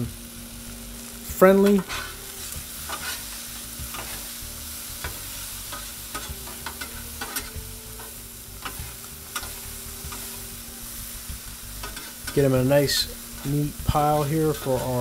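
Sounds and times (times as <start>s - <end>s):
bacon frying: 0.0s - 15.0s
vegetables sizzling on a griddle: 0.0s - 15.0s
metal spatulas scraping steel: 1.6s - 3.3s, 5.0s - 10.4s, 11.8s - 12.5s.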